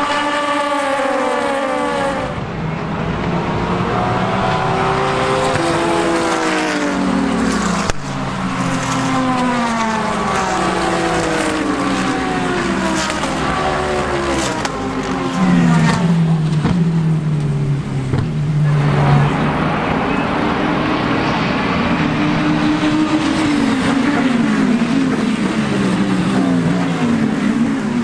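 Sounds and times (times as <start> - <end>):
race car engine at speed: 0.0 - 28.0
race car shifting gears: 0.0 - 28.0.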